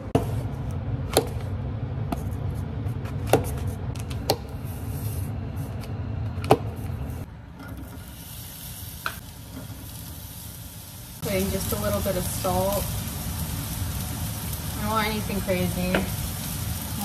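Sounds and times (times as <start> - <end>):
sizzling in frying pan: 7.8 - 17.0.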